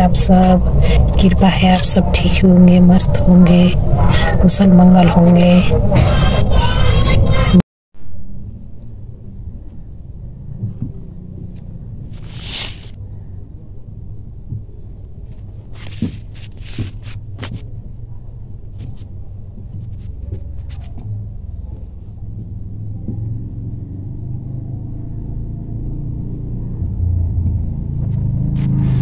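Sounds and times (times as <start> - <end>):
steady low rumble: 8.0 - 29.0
cloth rustling: 12.1 - 13.0, 15.3 - 17.6.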